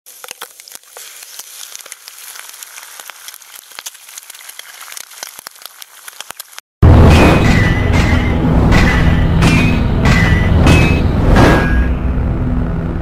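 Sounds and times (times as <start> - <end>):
bacon and egg sizzling in pan: 0.1 - 6.6.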